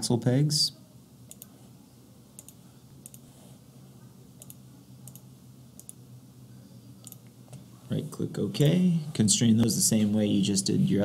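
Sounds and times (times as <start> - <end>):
faint low hum: 0.0 - 11.0
computer mouse clicks: 1.3 - 1.5, 2.4 - 3.3, 4.4 - 6.0, 7.0 - 7.3.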